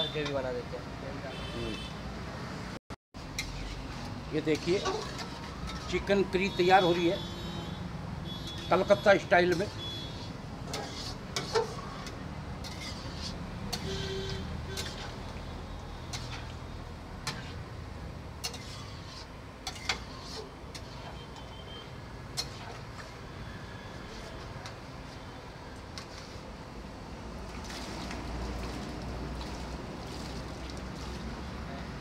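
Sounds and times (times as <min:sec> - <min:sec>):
metal ladle clinking and scraping: 0:10.7 - 0:15.2, 0:18.4 - 0:21.2.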